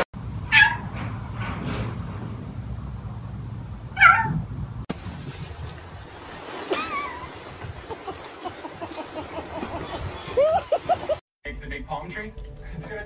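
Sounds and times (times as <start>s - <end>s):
outdoor background: 0.0s - 13.0s
cat meowing: 0.5s - 0.8s, 4.0s - 4.4s.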